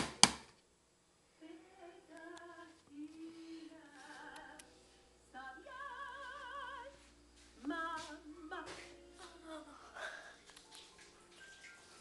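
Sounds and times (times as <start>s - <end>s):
woman singing through tv speaker: 1.4s - 4.7s, 5.3s - 10.1s.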